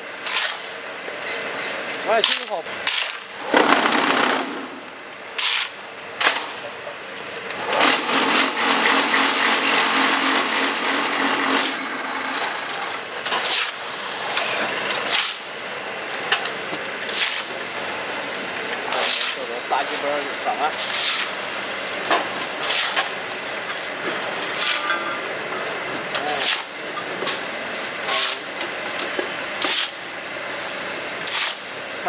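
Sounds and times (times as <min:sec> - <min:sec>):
low machine hum: 0:00.0 - 0:32.0
machine rattling: 0:07.5 - 0:13.6.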